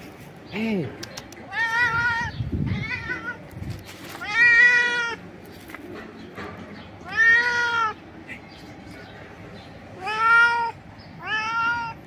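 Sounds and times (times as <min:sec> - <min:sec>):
cat meowing loudly: 0:01.5 - 0:03.5, 0:04.1 - 0:05.2, 0:07.0 - 0:08.0, 0:10.0 - 0:12.0.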